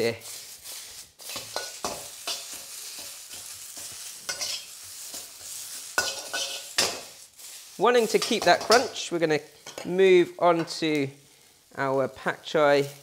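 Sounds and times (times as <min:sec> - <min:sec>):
vegetables sizzling in a wok: 0:00.0 - 0:13.0
metal spatula scraping a wok: 0:00.2 - 0:10.0.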